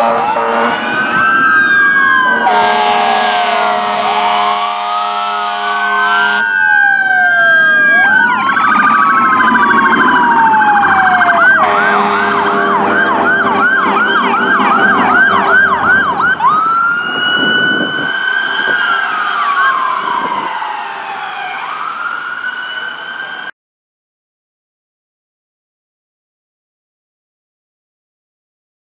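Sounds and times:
electronic sirens wailing and yelping: 0.0s - 23.5s
higher siren: 0.0s - 23.5s.

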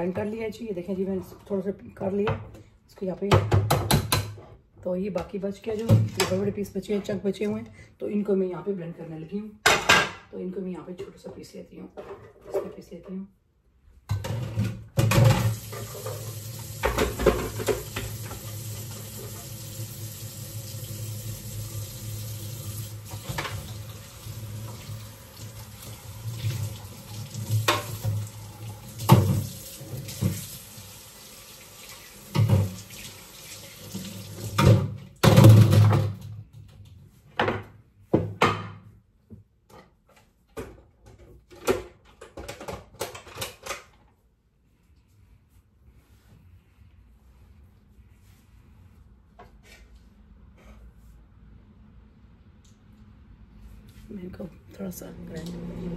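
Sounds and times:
faucet running into a sink: 15.3s - 34.8s.

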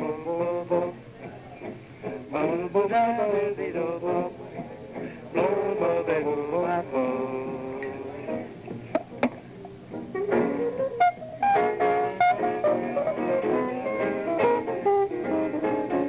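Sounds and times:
piano: 0.0s - 16.0s
electric guitar: 7.5s - 16.0s.

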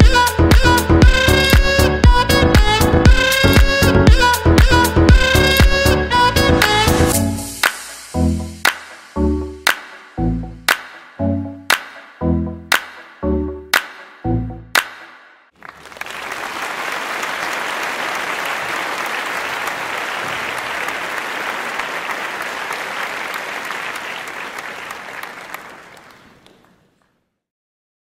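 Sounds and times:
music track: 0.0s - 15.1s
audience applause: 15.6s - 26.9s.

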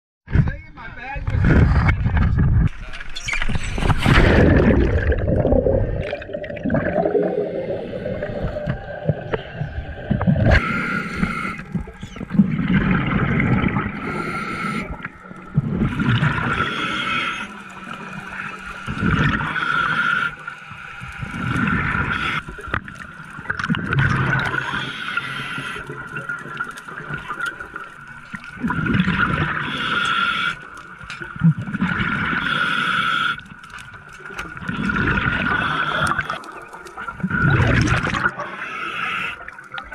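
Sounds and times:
bubbling exhale: 4.0s - 27.8s, 28.6s - 30.8s, 34.6s - 39.6s
regulator hissing inhale: 7.5s - 8.7s, 10.6s - 11.9s, 13.9s - 15.1s, 16.5s - 17.9s, 18.6s - 22.6s, 24.6s - 26.1s, 29.6s - 30.8s, 32.3s - 33.5s, 38.5s - 39.6s.

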